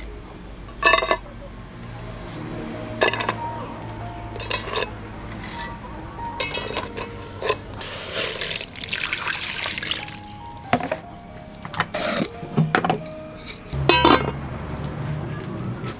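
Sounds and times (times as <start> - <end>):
water pouring into metal pot: 6.4 - 10.6.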